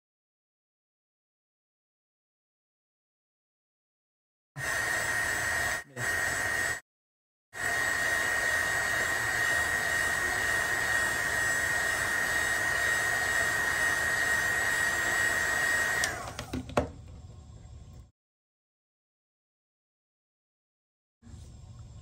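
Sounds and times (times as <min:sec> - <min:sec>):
heat gun blowing with high whine: 0:04.6 - 0:06.8, 0:07.6 - 0:16.9.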